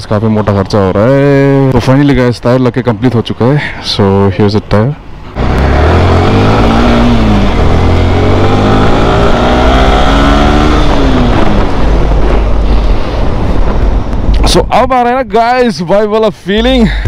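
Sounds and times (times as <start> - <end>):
motorcycle engine accelerating: 5.3 - 14.2.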